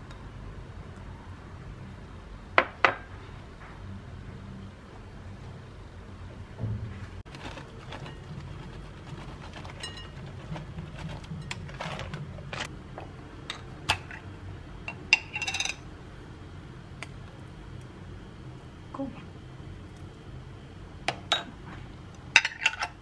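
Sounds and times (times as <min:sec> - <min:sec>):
steady low hum: 0:00.0 - 0:23.0
utensils clinking on glass bowls: 0:09.5 - 0:12.7, 0:14.9 - 0:15.8, 0:22.4 - 0:23.0.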